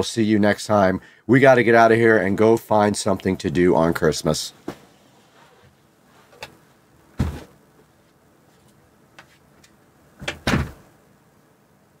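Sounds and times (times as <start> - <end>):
thumps and knocks: 7.2 - 7.6.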